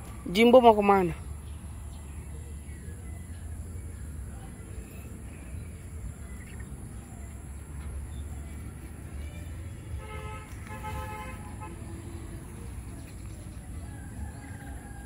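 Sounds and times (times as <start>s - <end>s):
faint bird chirps: 1.4s - 9.6s.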